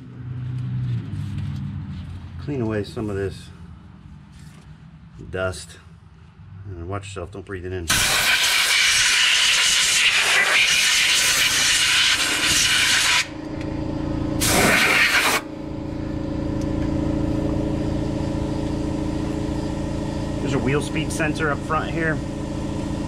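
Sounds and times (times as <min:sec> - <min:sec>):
compressed air blowgun hissing: 0:07.9 - 0:13.3, 0:14.4 - 0:15.5
steady machine hum: 0:08.0 - 0:23.0.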